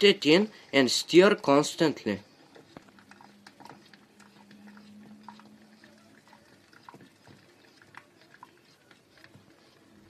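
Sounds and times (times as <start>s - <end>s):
low steady hum: 1.8s - 8.4s
spoon scraping a saucepan: 2.5s - 10.0s.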